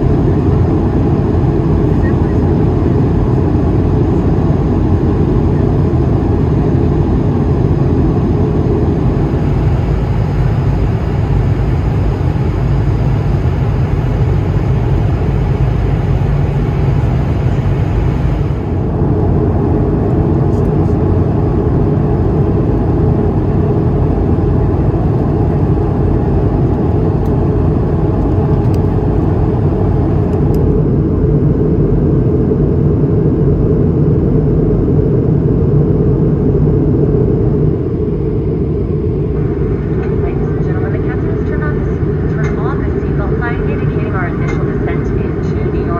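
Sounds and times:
airliner cabin noise: 0:00.0 - 0:45.9.

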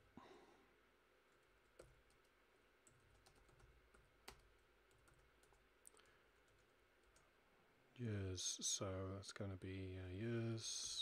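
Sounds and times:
computer keyboard keystrokes: 0:01.4 - 0:07.2.

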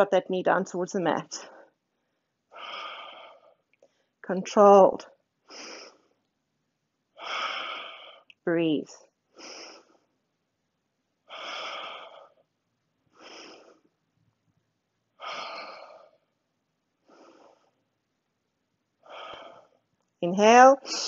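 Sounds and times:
woman breathing deeply: 0:01.4 - 0:04.2, 0:05.4 - 0:06.2, 0:07.1 - 0:08.3, 0:09.3 - 0:10.2, 0:11.2 - 0:14.0, 0:15.2 - 0:16.4, 0:17.0 - 0:17.9, 0:19.0 - 0:19.9.

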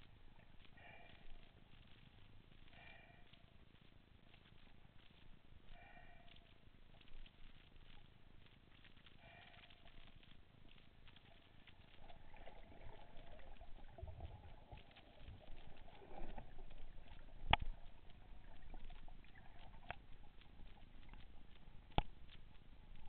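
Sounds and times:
faint underwater clicks crackling: 0:00.0 - 0:23.0
low underwater rumble: 0:06.9 - 0:23.0.

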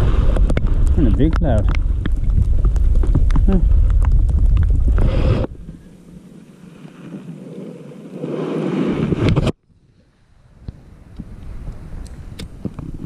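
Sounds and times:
wind buffeting microphone: 0:00.0 - 0:06.1, 0:10.5 - 0:13.0.

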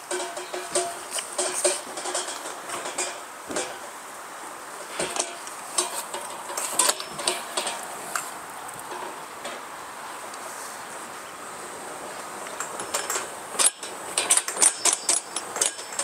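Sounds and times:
plastic cart clattering on wheels: 0:00.0 - 0:03.8, 0:04.9 - 0:08.3, 0:12.4 - 0:16.0.

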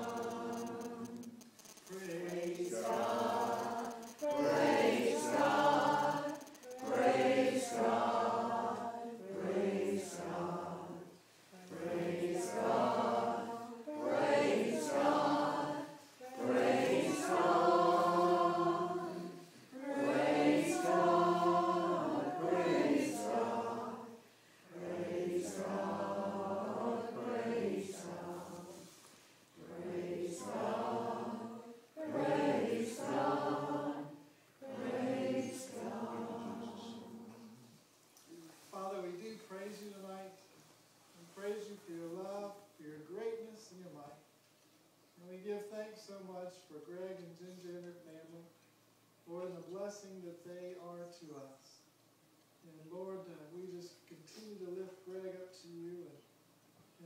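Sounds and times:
choir singing: 0:00.0 - 0:37.7.

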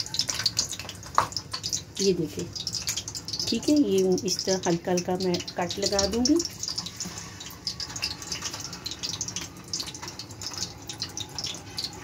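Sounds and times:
eggs sizzling in oil: 0:00.0 - 0:12.0.

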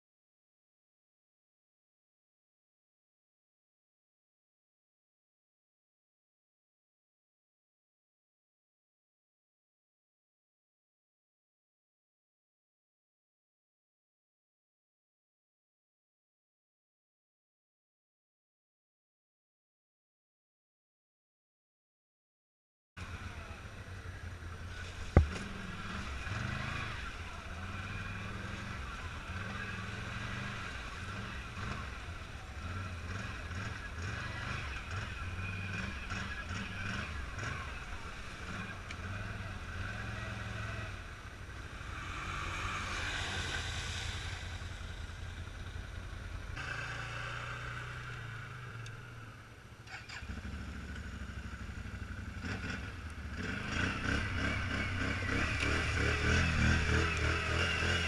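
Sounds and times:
quad bike engine revving: 0:23.0 - 0:58.0.

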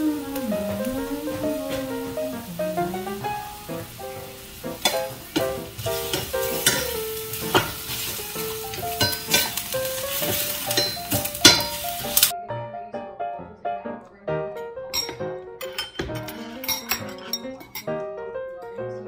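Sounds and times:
food sizzling in a frying pan: 0:00.0 - 0:12.3
background music: 0:00.0 - 0:19.0
wooden spatula scraping a pan: 0:04.8 - 0:12.3.

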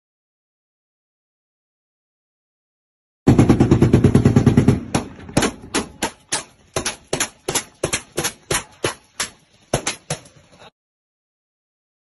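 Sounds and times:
gunshots: 0:03.3 - 0:08.9.

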